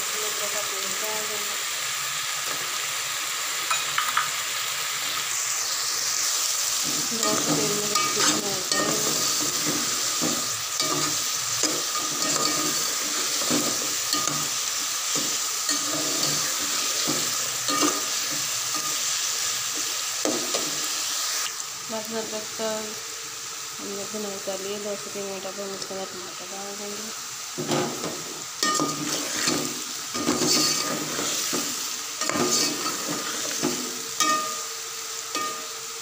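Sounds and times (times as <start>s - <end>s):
food sizzling in oil: 0.0s - 36.0s
metal spoon scraping pot: 30.2s - 31.3s.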